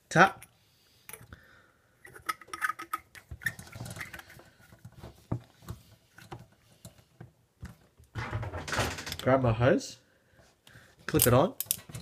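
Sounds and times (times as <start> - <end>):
metal adapter clicking and scraping: 2.1 - 4.5, 11.1 - 12.0.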